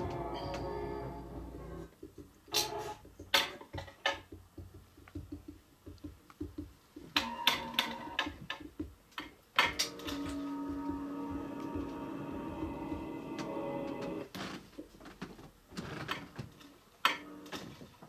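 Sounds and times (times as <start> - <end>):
sharp clicks and knocks: 1.4 - 11.9.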